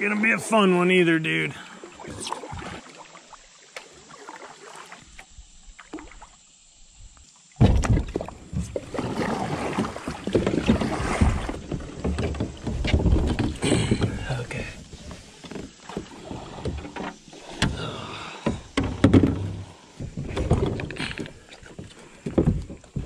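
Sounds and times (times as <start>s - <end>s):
kayak hull scraping against logs: 8.3s - 23.0s.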